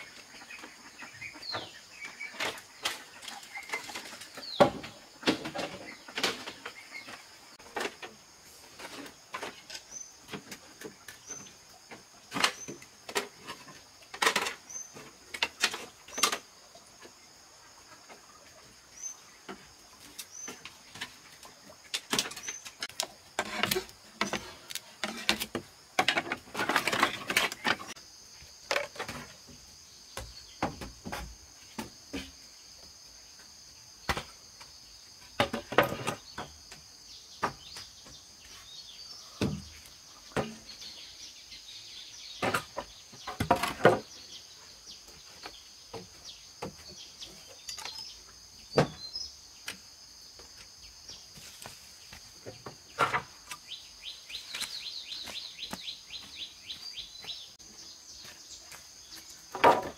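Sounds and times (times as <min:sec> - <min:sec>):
high insect chorus: 0:00.0 - 0:59.9.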